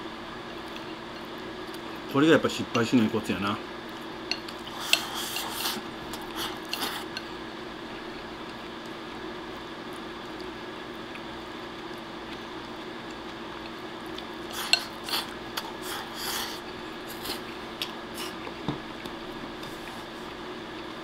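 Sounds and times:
low steady hum: 0.0s - 21.0s
food slurped: 4.5s - 7.1s, 14.4s - 18.6s.

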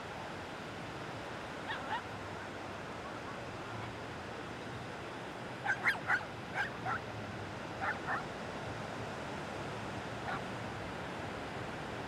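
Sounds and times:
dog barking: 5.6s - 7.0s, 7.8s - 8.2s.

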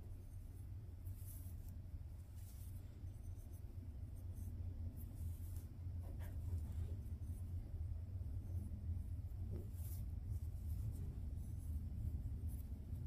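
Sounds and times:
knitting needles scratching yarn: 0.0s - 13.0s
steady low hum: 0.0s - 13.0s.

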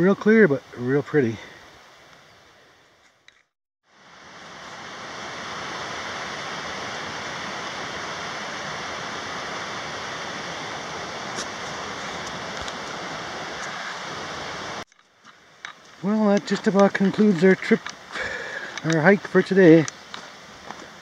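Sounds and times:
steady rushing hiss: 3.9s - 21.0s
faint clicks: 18.6s - 19.1s.

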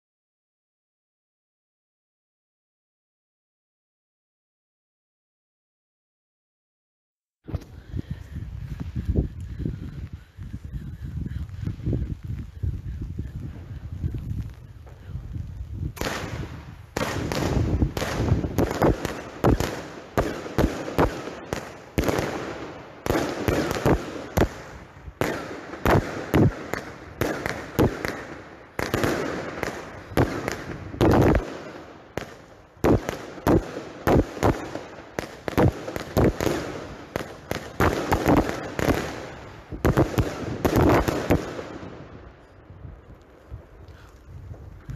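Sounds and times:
firework bangs: 15.9s - 42.4s.

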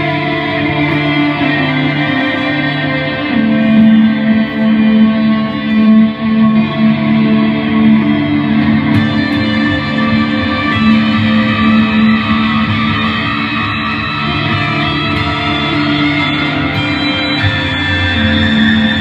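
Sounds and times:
electric guitar playing: 0.0s - 19.0s
sustained held tones: 9.0s - 19.0s.

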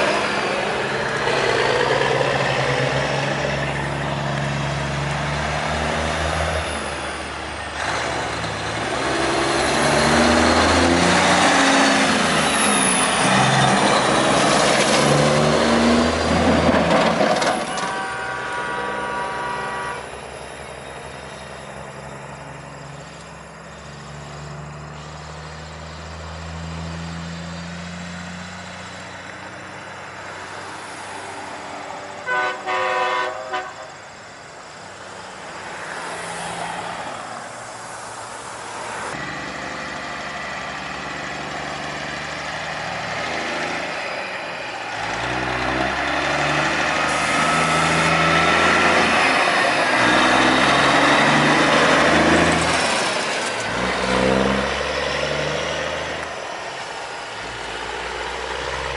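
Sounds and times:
truck driving past: 0.0s - 32.2s, 33.8s - 58.9s
diesel truck engines running: 0.0s - 58.9s
truck horn blasts: 17.6s - 20.2s, 32.2s - 34.0s.

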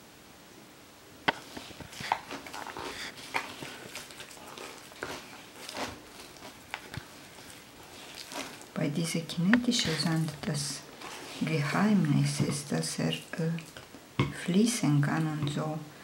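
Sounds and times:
hand squishing wet sand: 3.1s - 8.8s.

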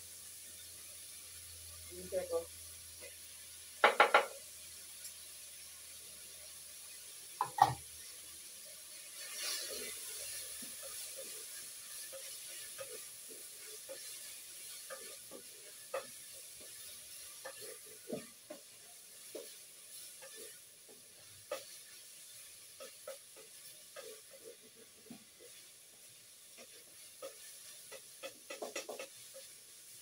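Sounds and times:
food sizzling in pan: 0.0s - 30.0s
utensil knocking against pan: 3.8s - 4.4s, 7.4s - 7.8s, 27.9s - 29.1s
spoon scraping and tapping: 7.4s - 7.8s, 26.6s - 29.5s.

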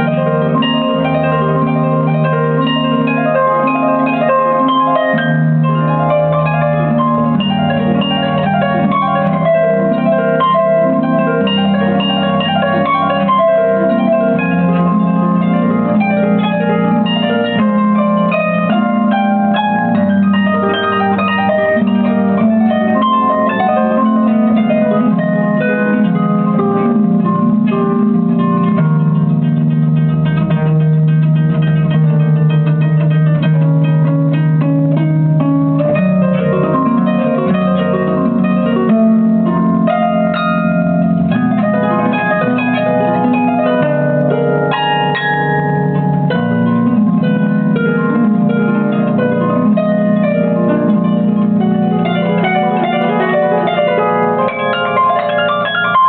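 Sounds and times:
harp melody plucked by hand: 0.0s - 56.0s.

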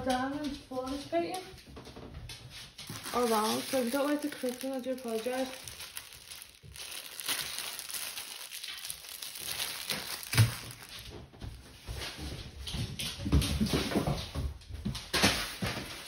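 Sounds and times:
plastic bag crinkling: 2.8s - 11.2s.

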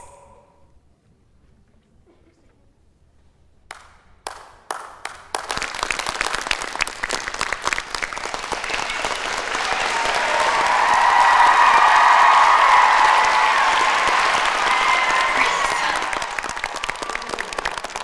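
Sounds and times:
lone claps: 3.7s - 18.0s
audience applause: 4.3s - 18.0s.

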